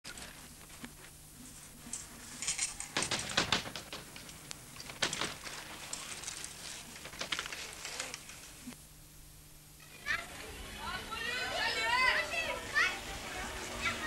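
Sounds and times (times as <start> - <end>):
bike frames and chains rattling: 1.9 - 8.4
loud crackly bursts: 2.4 - 8.8.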